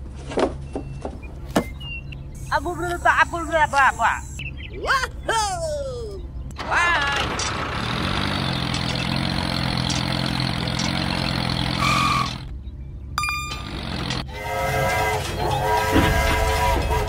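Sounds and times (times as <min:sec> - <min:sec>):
toy tractor engine running: 0:06.6 - 0:12.5, 0:13.2 - 0:15.4
train horn chord: 0:14.3 - 0:17.0.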